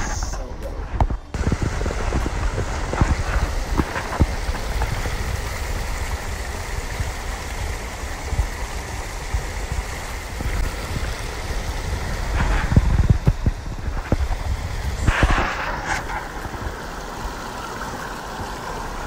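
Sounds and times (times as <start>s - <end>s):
water rushing: 0.0s - 19.0s
wind rumble on microphone: 0.0s - 19.0s
microphone handling bumps: 12.2s - 16.6s.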